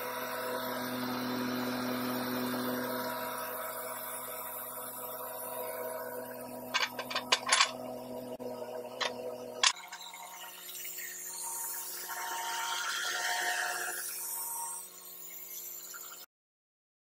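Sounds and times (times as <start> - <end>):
sharp metal clank: 6.8 - 7.8.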